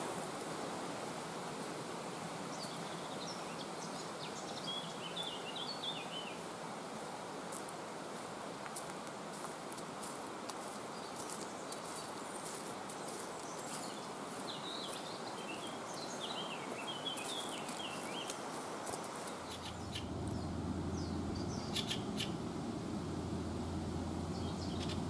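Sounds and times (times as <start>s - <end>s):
steady rushing hiss: 0.0s - 5.0s, 6.3s - 25.0s
footsteps crunching on leaves: 7.5s - 15.0s
small bird chirping: 19.3s - 22.6s, 23.6s - 25.0s
steady low hum: 19.5s - 25.0s.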